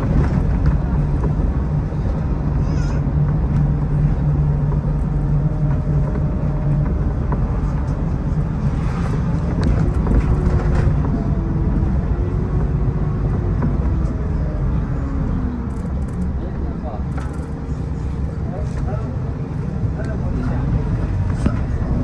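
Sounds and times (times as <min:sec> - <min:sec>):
bus engine drone: 0:00.0 - 0:22.0
road rumble: 0:00.0 - 0:22.0
light rattles and clicks: 0:15.6 - 0:19.1.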